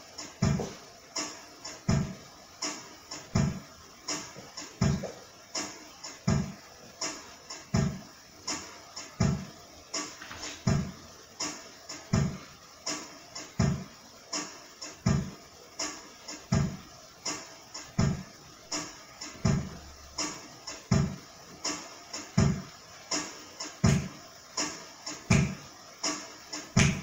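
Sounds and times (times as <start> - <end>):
light clicking percussion: 21.6 - 27.0.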